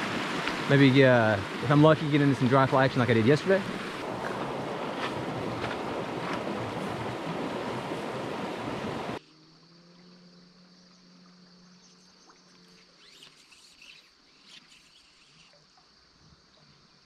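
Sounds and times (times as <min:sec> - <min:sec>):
stream flowing: 0:00.0 - 0:09.2
wind buffeting microphone: 0:00.0 - 0:09.2
faint high chirping: 0:09.4 - 0:15.9.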